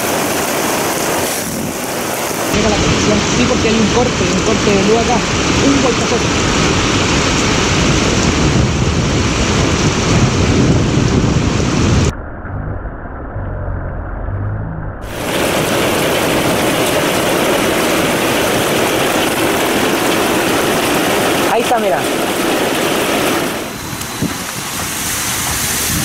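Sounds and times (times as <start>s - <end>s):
heavy rain and hail hiss: 0.0s - 12.1s, 15.0s - 26.0s
muffled deep rumble: 6.4s - 17.0s
hail pelting a roof: 15.1s - 23.8s.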